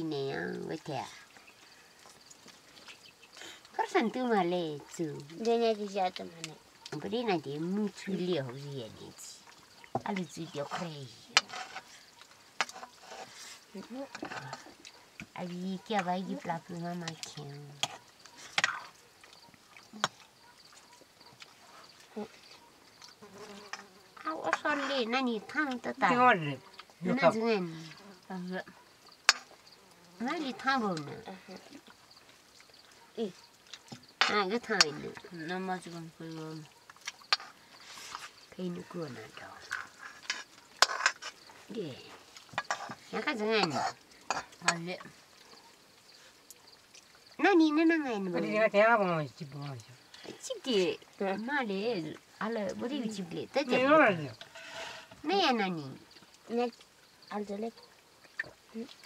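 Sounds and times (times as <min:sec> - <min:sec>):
metal ladle scraping a wok: 0:40.0 - 0:41.4.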